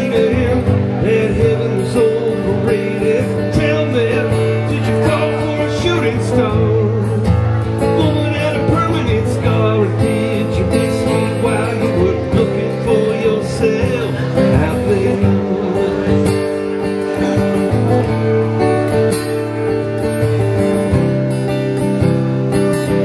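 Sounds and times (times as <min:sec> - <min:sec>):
man singing: 0:00.0 - 0:17.7
strummed acoustic guitar: 0:00.0 - 0:23.0.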